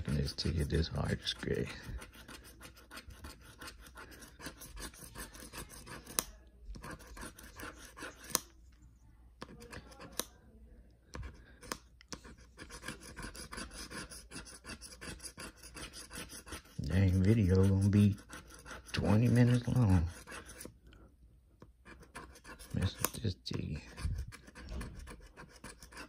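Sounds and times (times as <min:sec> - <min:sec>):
scratcher rubbing lottery ticket: 0:00.0 - 0:06.2, 0:06.8 - 0:08.5, 0:12.2 - 0:20.7, 0:21.9 - 0:26.0.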